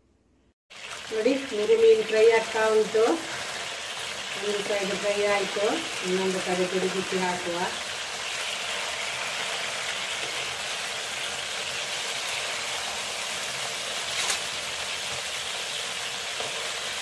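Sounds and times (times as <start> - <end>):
fish sizzling in hot oil: 0.7 - 17.0.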